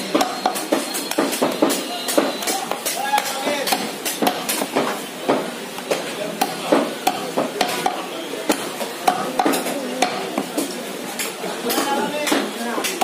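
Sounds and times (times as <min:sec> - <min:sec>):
knife chopping meat on wood: 0:00.0 - 0:13.0.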